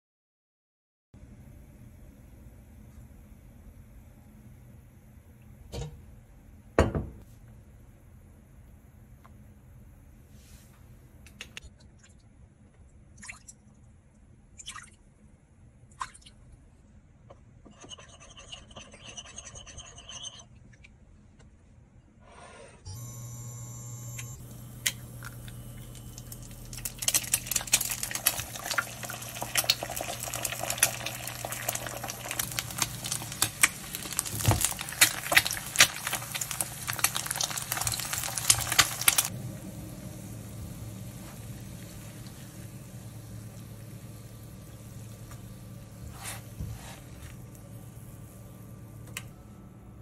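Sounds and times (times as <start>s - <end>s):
low steady hum: 1.2s - 50.0s
eggs frying in hot oil: 24.3s - 49.3s.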